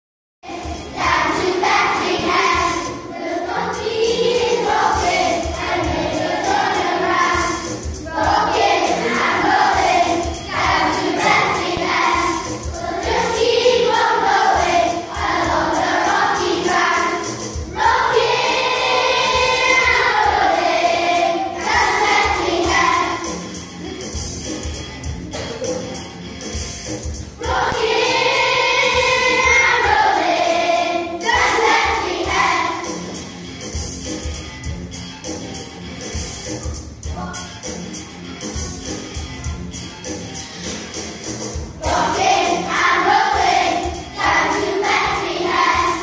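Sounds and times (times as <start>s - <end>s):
children's choir singing: 0.4s - 23.6s, 26.9s - 33.2s, 40.7s - 46.0s
musical accompaniment: 0.4s - 46.0s.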